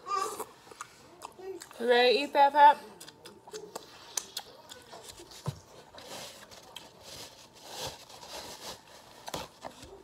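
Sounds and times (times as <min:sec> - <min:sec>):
paper towel rustling: 0:05.2 - 0:10.0.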